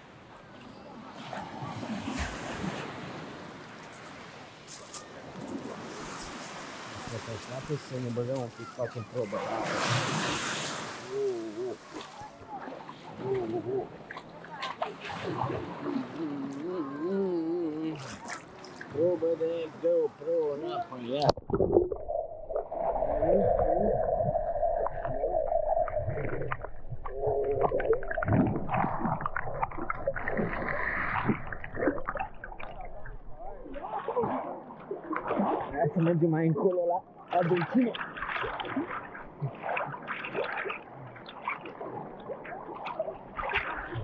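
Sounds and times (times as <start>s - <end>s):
water splashing around wading person: 0.6s - 19.9s, 21.1s - 44.0s
dull underwater hum: 21.2s - 33.8s
underwater gurgling and bubbling: 21.3s - 35.8s
underwater clicks: 24.8s - 33.8s.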